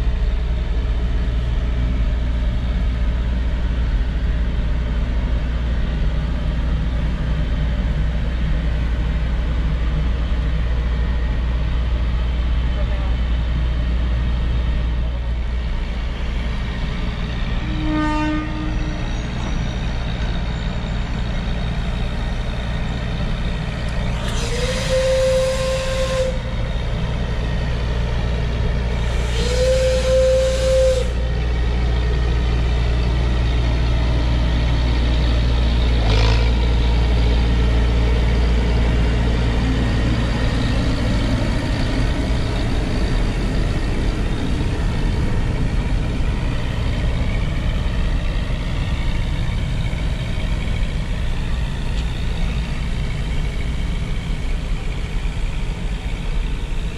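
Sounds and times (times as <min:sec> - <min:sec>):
steam whistle blasts: 0:17.7 - 0:19.1, 0:24.2 - 0:26.6, 0:29.0 - 0:31.4
steam hissing: 0:24.0 - 0:26.6, 0:28.8 - 0:31.5.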